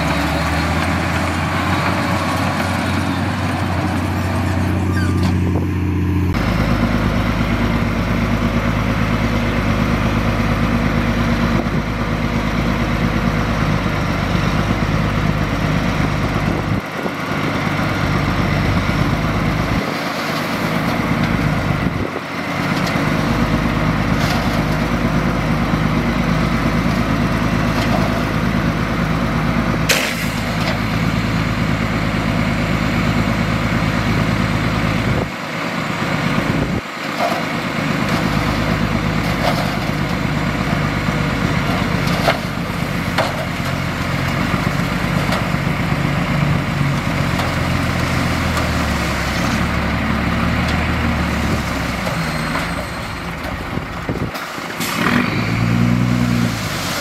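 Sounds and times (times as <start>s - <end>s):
heavy diesel engine running: 0.0s - 57.0s.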